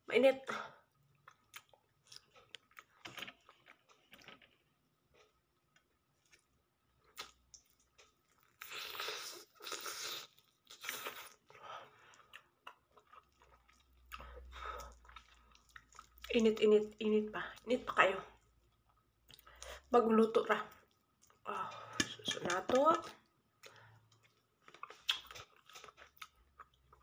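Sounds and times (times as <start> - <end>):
chewing crunchy fish: 0.9 - 16.9, 23.0 - 27.0.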